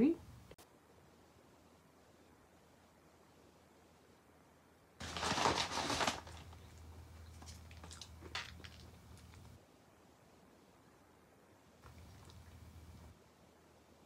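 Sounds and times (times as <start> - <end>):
plastic packet crinkling: 5.0 - 9.5
small crackles and clicks: 5.0 - 9.6.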